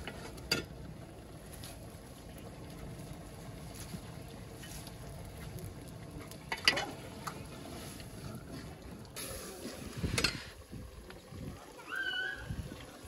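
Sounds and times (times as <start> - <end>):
steady low rumble: 0.0 - 11.6.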